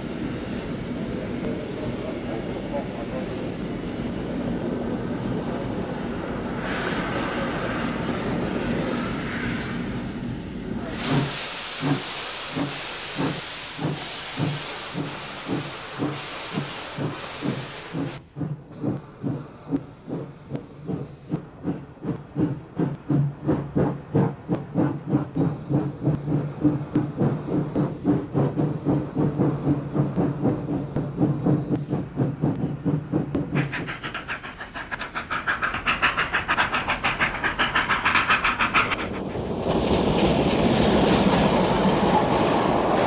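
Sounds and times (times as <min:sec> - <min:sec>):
steam locomotive exhaust beats: 0:00.0 - 0:43.0
loud hiss of escaping steam: 0:10.8 - 0:18.2.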